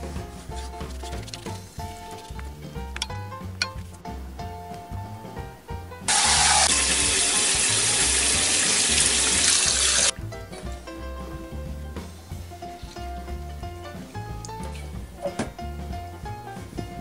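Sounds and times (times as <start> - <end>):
background music: 0.0 - 17.0
tap water running into sink: 6.1 - 10.1.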